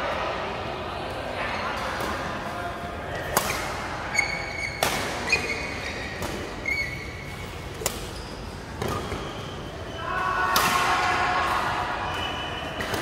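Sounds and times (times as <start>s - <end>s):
shoes squeaking on court: 4.1s - 9.8s.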